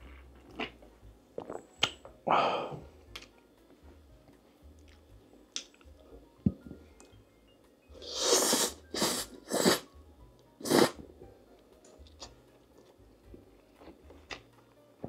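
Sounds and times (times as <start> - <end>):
soft chewing and mouth clicks: 0.0 - 2.1, 3.1 - 3.4, 4.7 - 7.2, 11.2 - 14.8.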